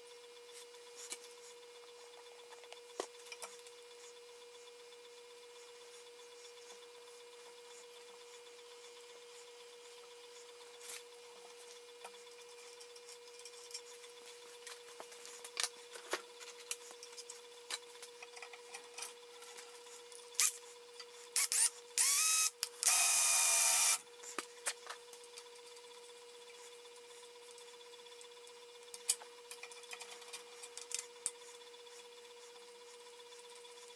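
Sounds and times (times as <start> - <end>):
faint steady hum: 0.0 - 33.9
tap wrench clicks and creaks: 21.4 - 23.0.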